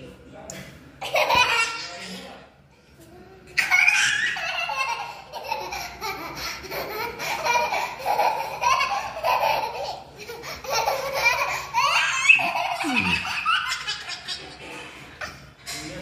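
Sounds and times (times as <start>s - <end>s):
children laughing: 1.0s - 2.3s, 3.6s - 16.0s
toddler giggling: 3.6s - 15.8s.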